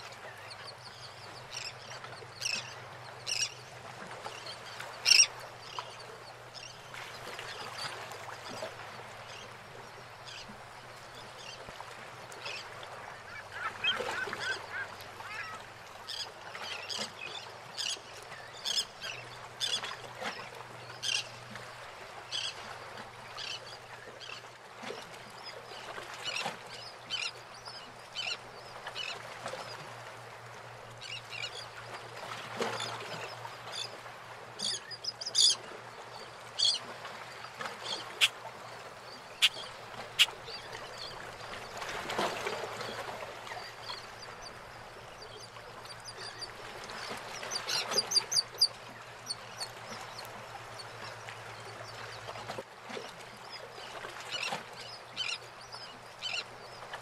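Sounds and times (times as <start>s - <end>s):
water washing around boats: 0.0s - 57.0s
birds high calls: 39.1s - 41.2s.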